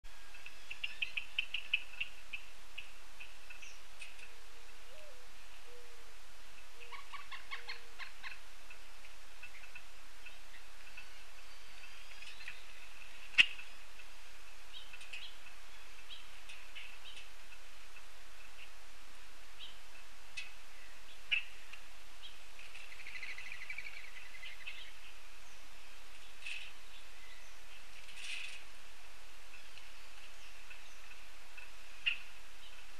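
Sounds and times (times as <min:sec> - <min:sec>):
outdoor background hiss: 0:00.0 - 0:32.9
small birds chipping: 0:00.2 - 0:05.9, 0:06.5 - 0:32.9
dove cooing: 0:04.5 - 0:06.1, 0:06.7 - 0:08.4
bird harsh repeated calls: 0:06.8 - 0:08.4.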